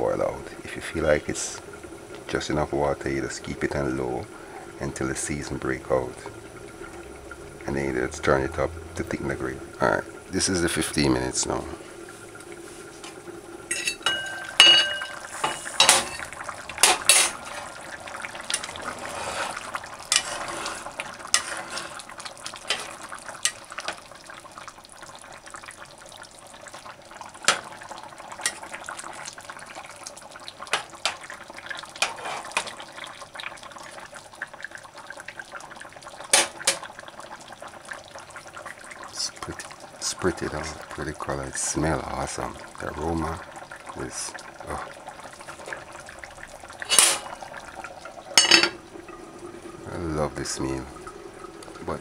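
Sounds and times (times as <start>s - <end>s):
stew simmering: 0.0s - 52.0s
metal pot lid clanking: 13.7s - 17.4s, 46.9s - 47.3s, 48.4s - 48.8s
metal spatula scraping a pot: 13.7s - 17.8s, 18.5s - 22.1s, 22.7s - 23.0s, 32.0s - 32.7s.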